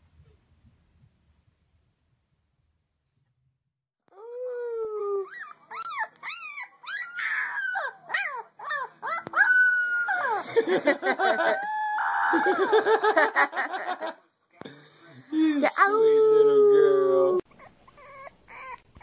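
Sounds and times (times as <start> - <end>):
puppy howling and whining: 4.2 - 10.4, 16.5 - 19.0
puppy yipping: 5.2 - 10.4, 17.5 - 19.0.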